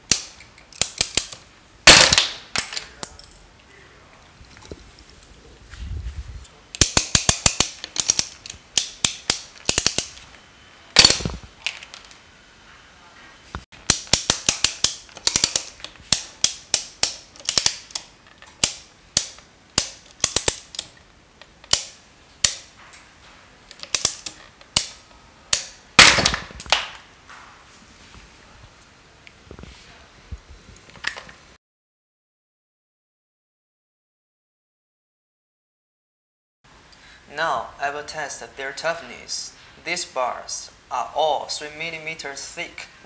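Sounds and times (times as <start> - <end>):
plastic rings cracking: 0.0 - 3.0, 6.7 - 10.2, 11.0 - 12.2, 13.8 - 22.7, 23.7 - 27.0
ratchet clicking: 6.8 - 10.1, 13.8 - 18.0, 18.6 - 20.9.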